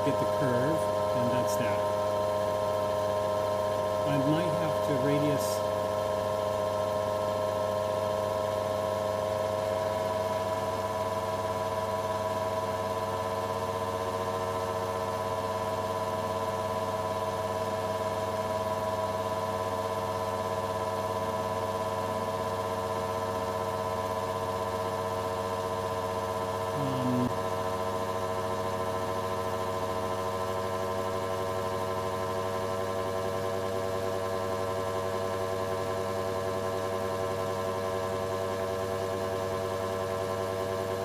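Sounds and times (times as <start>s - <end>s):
lathe spindle motor humming: 0.0s - 7.4s.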